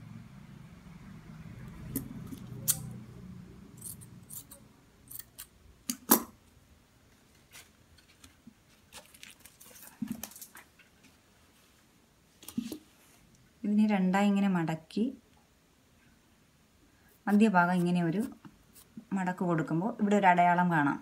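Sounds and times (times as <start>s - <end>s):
scissors snipping: 1.9s - 3.0s.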